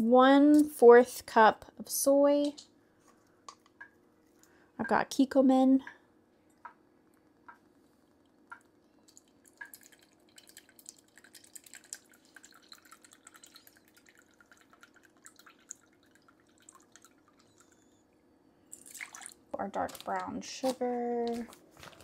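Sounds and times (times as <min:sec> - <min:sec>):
sauce dripping into cup: 0:08.3 - 0:17.8.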